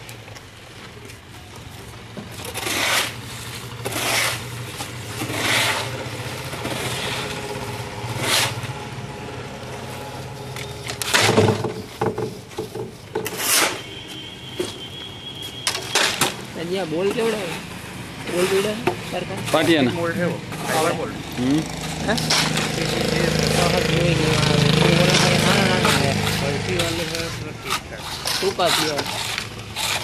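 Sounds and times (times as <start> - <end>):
shovel scraping wet concrete: 2.3 - 8.9, 9.8 - 12.4, 13.2 - 13.9, 21.7 - 30.0.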